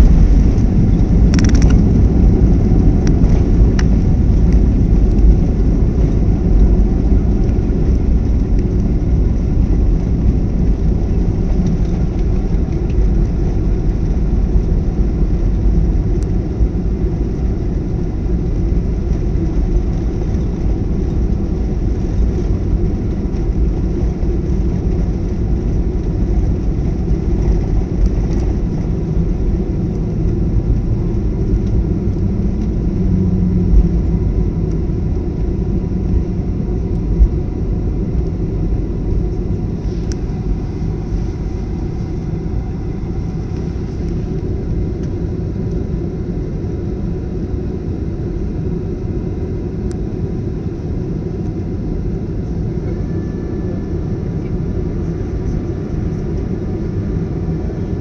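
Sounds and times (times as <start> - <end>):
airliner engine and wheel rumble: 0.0 - 58.0.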